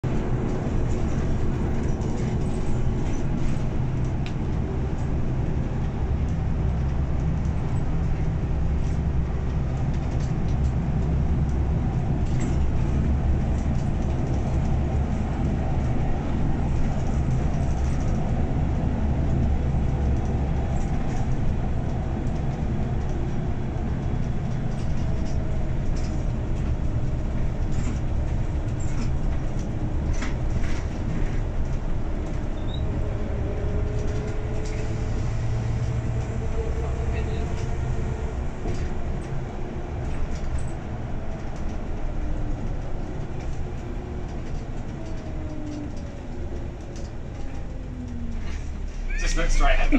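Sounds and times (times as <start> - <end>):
bus diesel engine droning: 0.0 - 49.9
road noise: 0.0 - 49.9
light clicks and rattles: 40.0 - 49.0.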